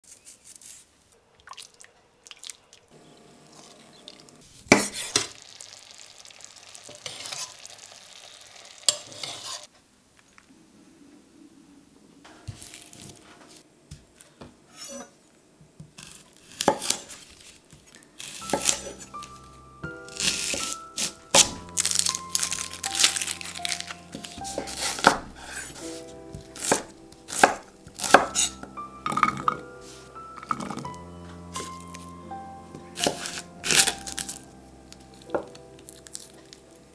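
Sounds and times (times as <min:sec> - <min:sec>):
sauce sizzling in a pan: 0:04.6 - 0:09.7
metal spoon stirring and scraping: 0:06.9 - 0:07.8, 0:08.9 - 0:09.7, 0:26.6 - 0:29.6
crisp cutting sounds: 0:16.0 - 0:32.2, 0:32.8 - 0:36.9
knife striking cutting board: 0:18.2 - 0:19.1, 0:24.2 - 0:25.6, 0:26.4 - 0:29.7, 0:33.0 - 0:34.3.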